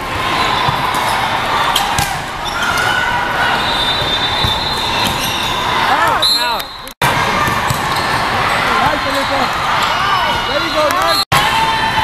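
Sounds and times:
chatter in echoing sports hall: 0:00.0 - 0:12.0
shoe squeaks: 0:02.4 - 0:06.9.

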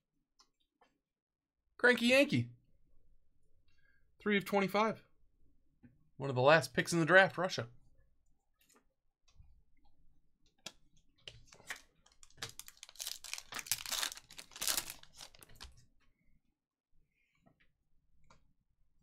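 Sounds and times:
foil wrapper crinkling: 0:12.1 - 0:15.8.

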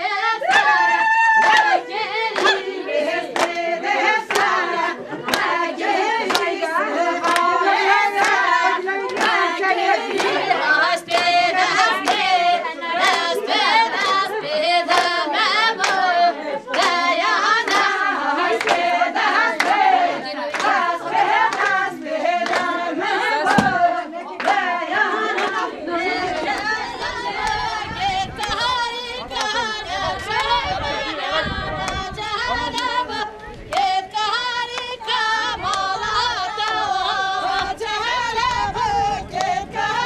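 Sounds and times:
women singing together: 0:00.0 - 0:40.0
hand clapping: 0:02.3 - 0:02.7, 0:03.3 - 0:03.6, 0:04.3 - 0:04.6, 0:05.2 - 0:05.6, 0:06.2 - 0:06.6, 0:07.2 - 0:07.6, 0:08.2 - 0:08.4, 0:09.0 - 0:10.5, 0:11.1 - 0:12.3, 0:14.9 - 0:15.2, 0:15.8 - 0:16.1, 0:16.7 - 0:17.0, 0:17.7 - 0:17.9, 0:18.6 - 0:19.9, 0:20.5 - 0:20.8, 0:21.4 - 0:21.8, 0:22.4 - 0:22.8, 0:23.4 - 0:23.8, 0:24.4 - 0:24.6.

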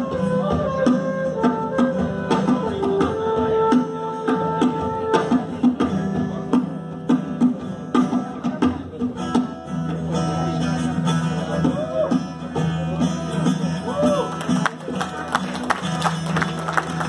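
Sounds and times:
flute: 0:00.0 - 0:05.8, 0:11.5 - 0:12.4
acoustic guitar strumming: 0:00.0 - 0:17.0
dholak drum: 0:00.0 - 0:17.0.

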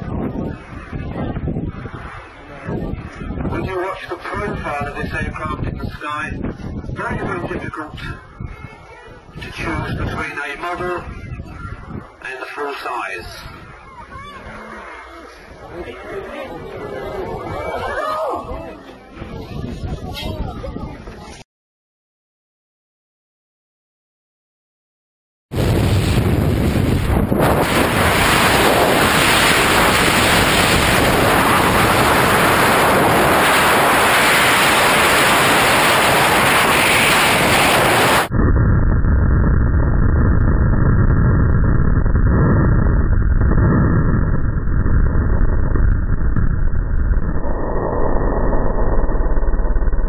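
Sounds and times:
wind buffeting microphone: 0:00.0 - 0:12.2, 0:13.2 - 0:21.4, 0:25.6 - 0:50.0.

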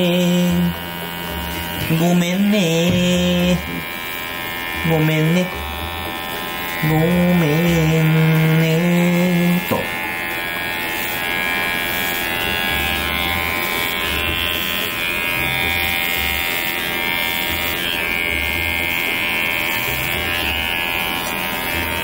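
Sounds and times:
electric hair clippers buzzing: 0:00.0 - 0:22.0.

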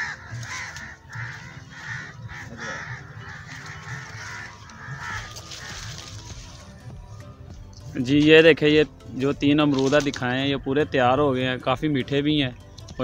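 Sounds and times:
crows cawing: 0:00.0 - 0:07.2.

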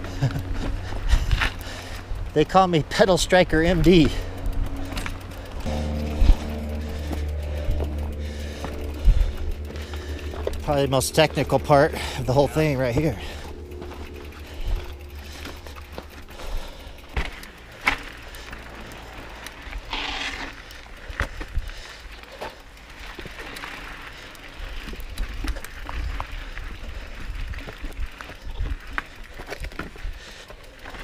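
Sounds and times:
steady low rumble: 0:00.0 - 0:19.9
bike clattering over rocks: 0:03.9 - 0:31.0.

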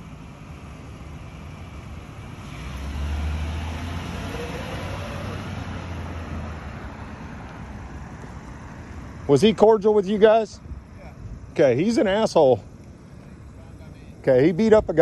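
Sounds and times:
police car engine accelerating: 0:00.0 - 0:07.5.

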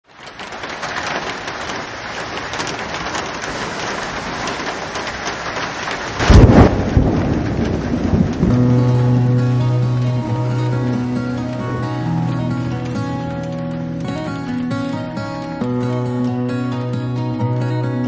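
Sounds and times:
steady rain: 0:00.0 - 0:18.0
thunder rumble: 0:00.2 - 0:16.0
music with held notes: 0:08.5 - 0:18.0.

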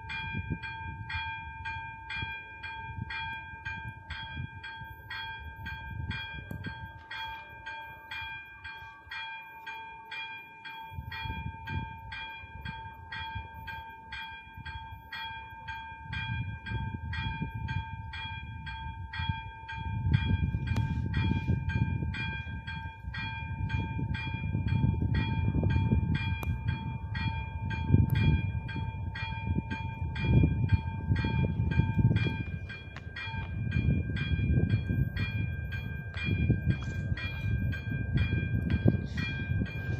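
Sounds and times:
level-crossing warning bell ringing: 0:00.0 - 0:39.9
train rumbling: 0:16.1 - 0:39.9.

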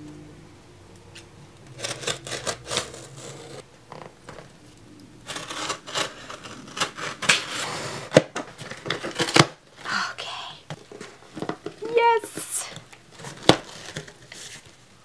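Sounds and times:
cardboard box scraping and rustling: 0:01.8 - 0:03.6, 0:05.3 - 0:09.4.

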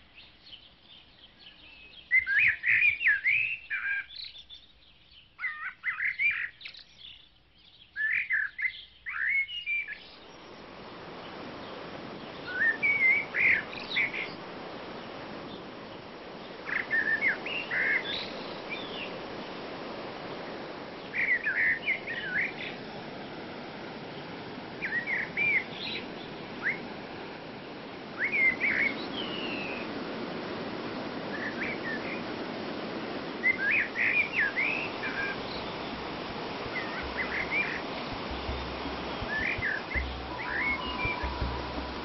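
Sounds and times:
songbird chirping: 0:00.0 - 0:42.0
falling water rushing: 0:10.1 - 0:42.0
deep rumble: 0:36.7 - 0:42.0.

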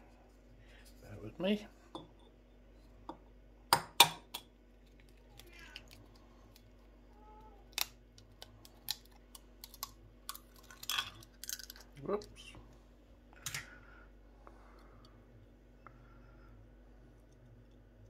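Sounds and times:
eggshell cracking: 0:07.6 - 0:12.3.

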